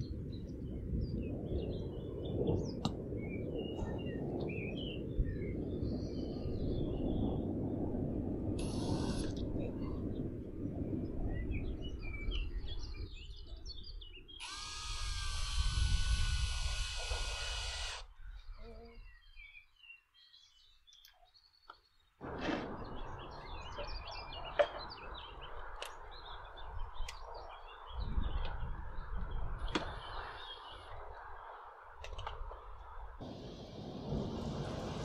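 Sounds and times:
steady outdoor background noise: 0.0 - 35.0
small birds chirping: 11.3 - 31.7
power tool running: 14.4 - 18.0.

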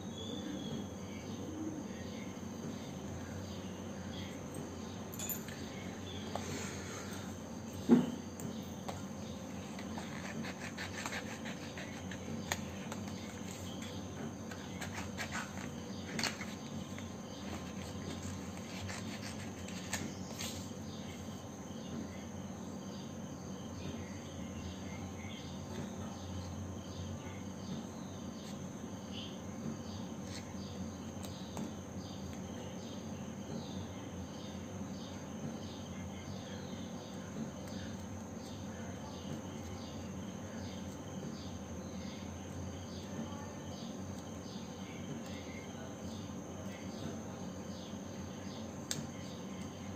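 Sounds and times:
scissors snipping paper: 9.6 - 20.6.

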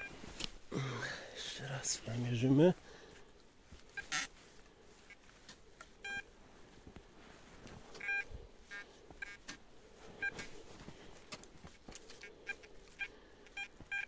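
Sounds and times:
metal detector beeps: 4.0 - 4.3, 6.0 - 6.3, 8.0 - 9.4, 12.2 - 14.0.

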